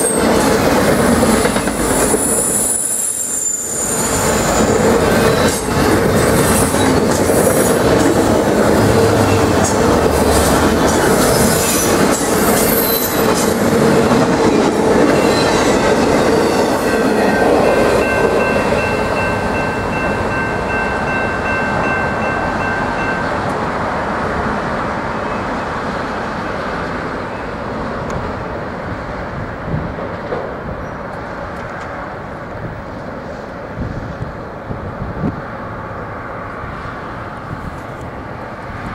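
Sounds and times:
train wheels squealing on rails: 0.0s - 13.8s, 14.5s - 23.4s, 30.7s - 31.6s
steady high tone: 14.6s - 24.0s.

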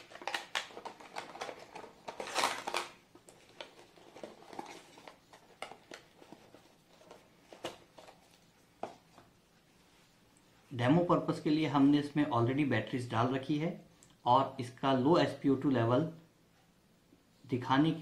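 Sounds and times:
plastic crinkling rustle: 0.0s - 9.2s.

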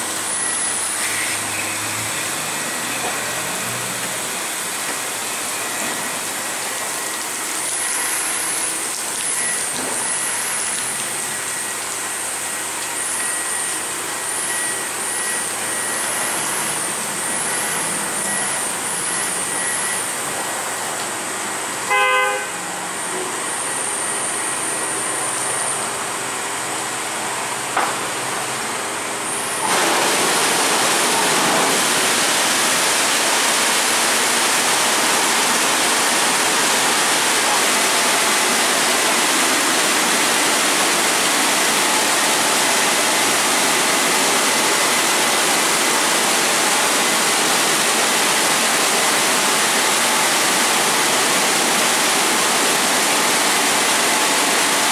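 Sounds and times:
car wash machine hum: 0.0s - 54.9s
water spraying over car: 0.1s - 22.0s, 29.3s - 54.9s
short horn-like tone: 21.9s - 22.8s.

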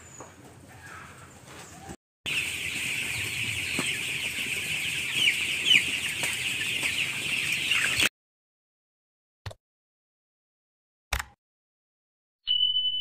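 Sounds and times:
chicks peeping chorus: 0.1s - 8.1s.

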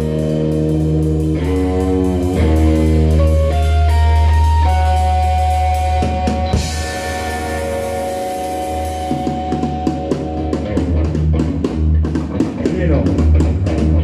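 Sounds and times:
double bass: 0.0s - 6.7s
drum kit: 0.0s - 14.0s
electric guitar: 0.0s - 14.0s.

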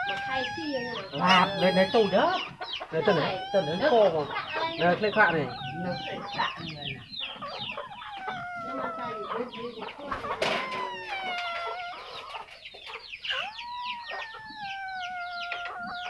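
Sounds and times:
rooster crowing: 0.0s - 2.4s, 8.0s - 9.9s, 13.4s - 16.0s
chicks peeping: 0.0s - 16.0s.

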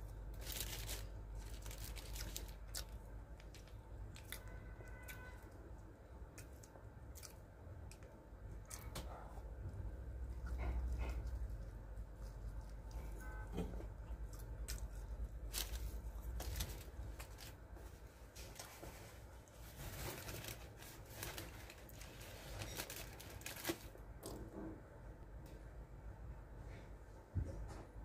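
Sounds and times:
paper crinkling and tearing: 0.3s - 5.3s, 14.7s - 17.6s, 19.5s - 24.0s.

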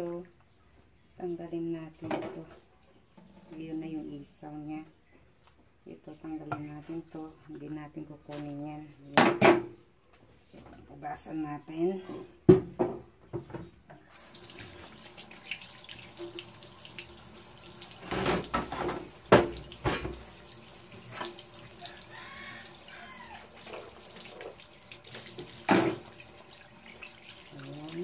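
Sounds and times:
faucet running into sink: 14.1s - 28.0s.

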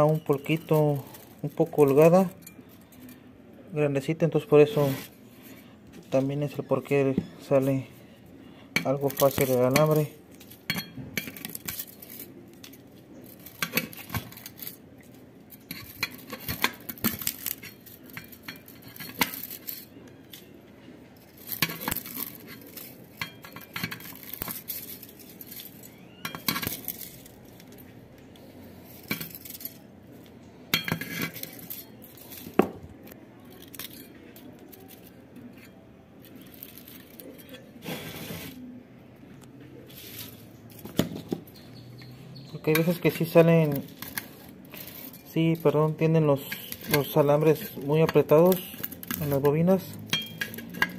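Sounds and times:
metal wire clinking and scraping: 0.0s - 38.8s, 39.7s - 50.9s.

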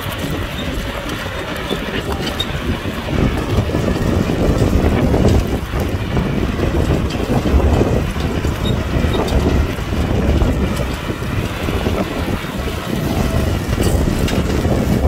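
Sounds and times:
tractor diesel engine running: 0.0s - 15.0s.

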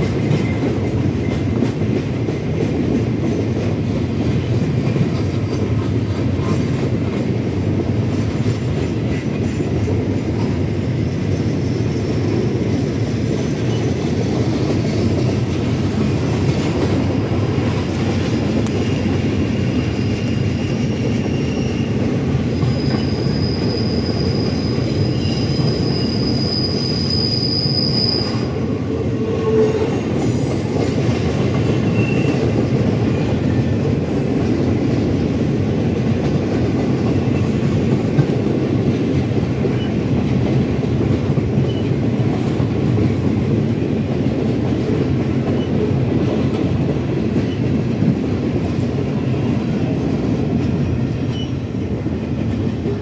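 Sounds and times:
train wheels running on rails: 0.0s - 53.0s
high wheel squeal: 18.7s - 30.8s, 31.6s - 32.4s.

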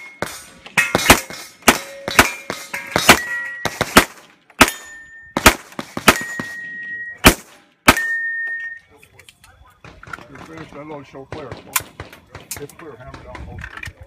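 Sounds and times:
steel target ringing: 0.0s - 3.9s, 4.6s - 5.4s, 6.1s - 7.2s, 7.9s - 8.8s
pistol shots: 0.0s - 6.6s, 7.2s - 8.2s.

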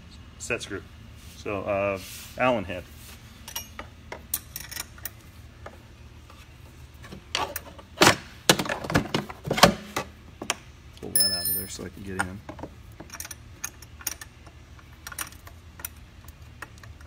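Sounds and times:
metal tools clinking on metal: 11.2s - 12.3s.

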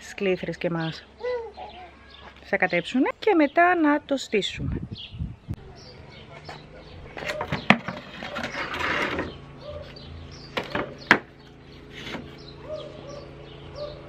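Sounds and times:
small birds chirping: 0.0s - 14.0s
wood scraping on wood: 7.1s - 9.4s, 10.6s - 12.5s
wooden pallets knocking: 7.2s - 9.3s.

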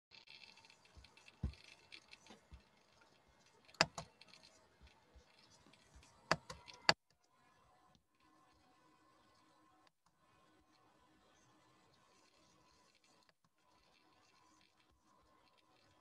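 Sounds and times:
sharp clicks and knocks: 3.7s - 7.0s.

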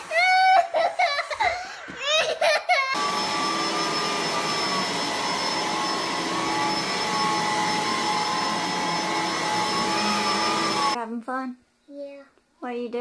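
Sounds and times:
vacuum cleaner running on carpet: 3.0s - 11.0s.

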